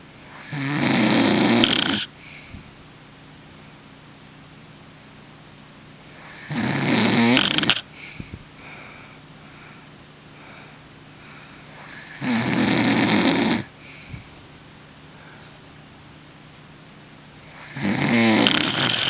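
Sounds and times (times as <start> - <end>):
man snoring loudly: 0.3 - 2.1, 6.2 - 7.9, 11.8 - 13.7, 17.5 - 19.0
quiet breath out: 2.1 - 2.8, 7.9 - 12.0, 13.7 - 14.5, 15.1 - 15.6.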